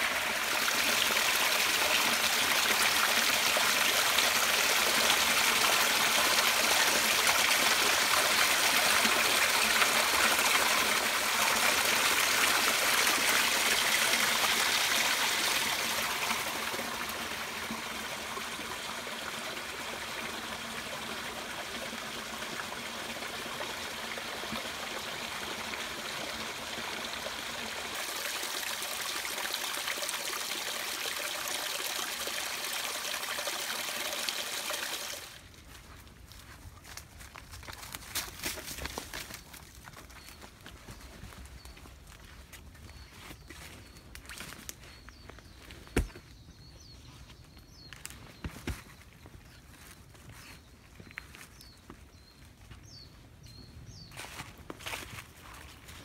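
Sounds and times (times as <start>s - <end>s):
waterfall splashing over rocks: 0.0s - 35.3s.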